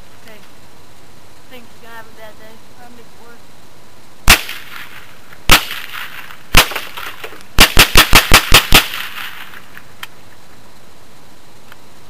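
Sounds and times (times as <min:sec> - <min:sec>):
rifle shots: 0:04.2 - 0:09.8.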